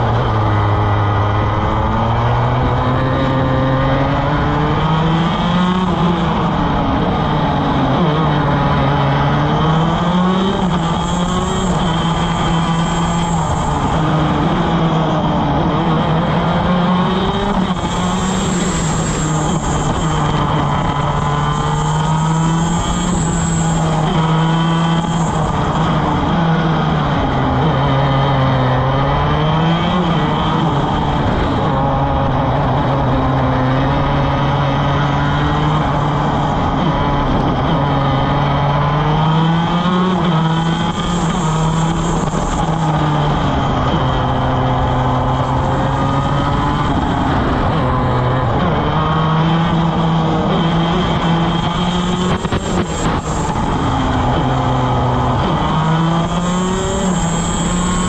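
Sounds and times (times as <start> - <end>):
kart engine at race speed: 0.0 - 58.0
wind noise: 0.0 - 58.0.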